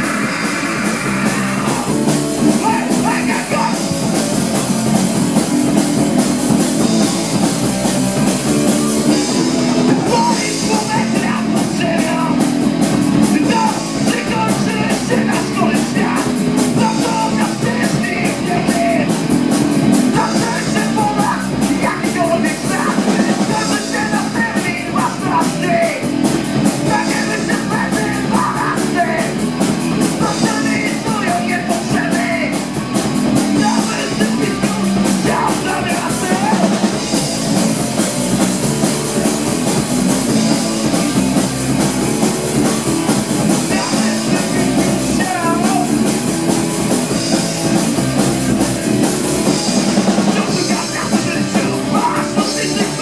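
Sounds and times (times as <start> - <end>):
punk rock band playing: 0.0 - 53.0
person singing into microphone: 2.6 - 4.0, 10.0 - 12.4, 13.3 - 19.1, 20.1 - 26.1, 26.8 - 29.4, 30.1 - 32.6, 33.5 - 36.9, 43.6 - 46.1, 50.2 - 53.0.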